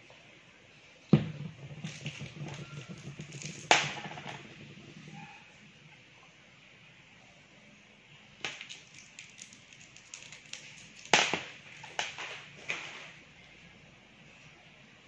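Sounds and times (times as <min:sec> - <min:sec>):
plastic wrappers crinkling: 0:08.5 - 0:11.2.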